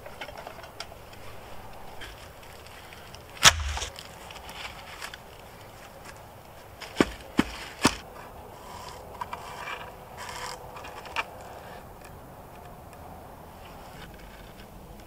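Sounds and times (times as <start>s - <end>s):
sharp knocks: 3.4s - 3.9s.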